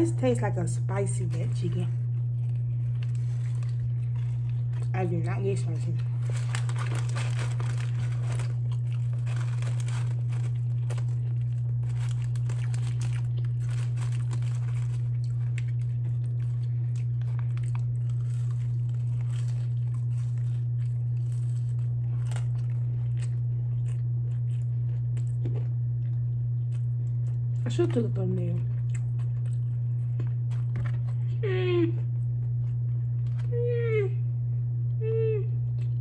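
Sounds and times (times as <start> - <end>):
steady low hum: 0.0 - 36.0
chewing food: 1.2 - 33.5
paper wrapper crinkling: 2.5 - 23.5.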